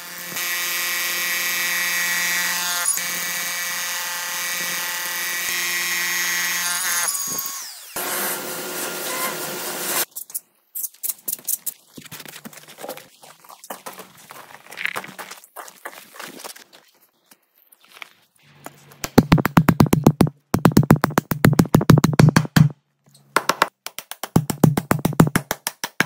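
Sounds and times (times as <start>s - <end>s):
power tool motor whining: 6.8s - 10.0s.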